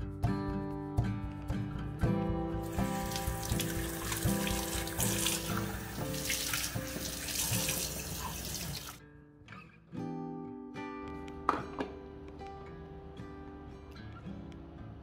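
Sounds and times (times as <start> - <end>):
acoustic guitar music: 0.0 - 15.0
tap water splashing into sink: 2.7 - 9.0.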